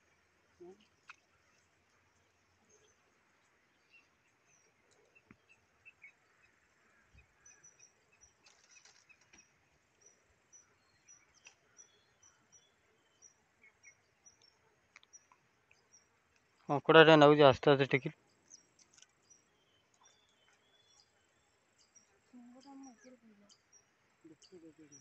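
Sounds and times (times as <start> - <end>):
faint high-pitched chirps: 0.0 - 17.2, 17.8 - 25.0.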